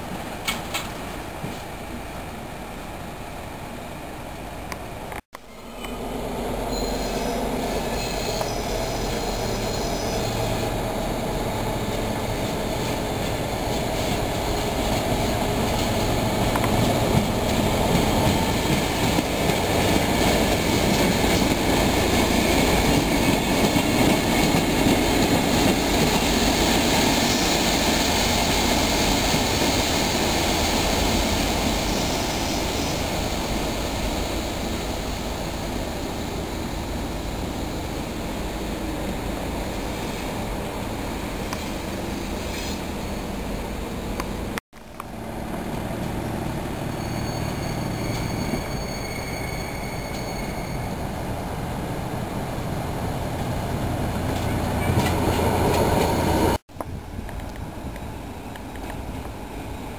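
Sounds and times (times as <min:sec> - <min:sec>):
diesel locomotive engines: 0:00.0 - 0:59.9.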